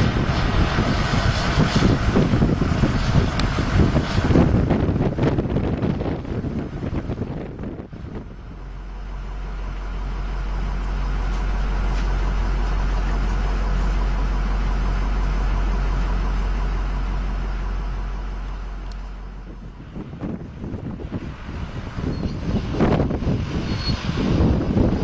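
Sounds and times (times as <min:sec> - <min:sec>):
freight train rolling past: 0:00.0 - 0:25.0.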